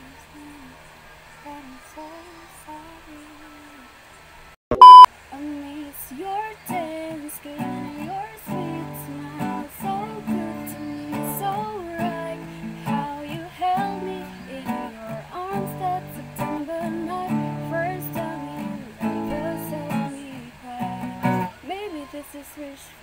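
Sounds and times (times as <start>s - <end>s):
woman singing: 0.0s - 0.8s, 1.4s - 3.9s, 5.3s - 23.0s
acoustic guitar strummed: 7.6s - 20.2s.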